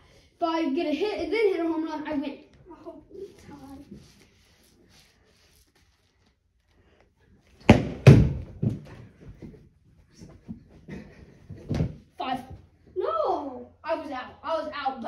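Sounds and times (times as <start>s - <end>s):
bat hitting foam ball: 7.6s - 9.0s.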